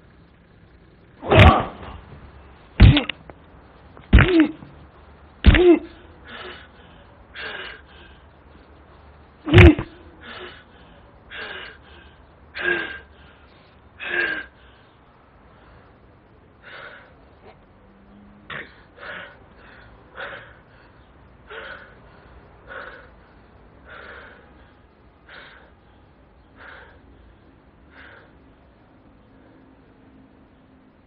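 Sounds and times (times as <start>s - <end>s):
person gasping breaths: 5.5s - 8.4s, 9.6s - 15.0s.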